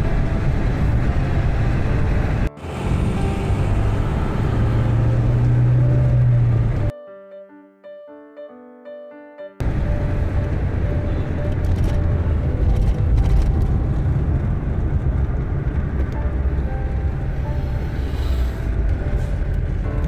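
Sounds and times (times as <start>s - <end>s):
car road and wind noise: 0.0s - 6.9s, 9.6s - 20.0s.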